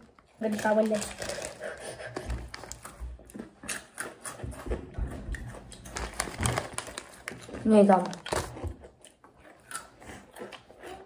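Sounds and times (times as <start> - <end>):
foil snack bag crinkling: 0.0 - 3.0, 5.8 - 8.9
chips crunching: 0.0 - 4.4, 5.4 - 11.0.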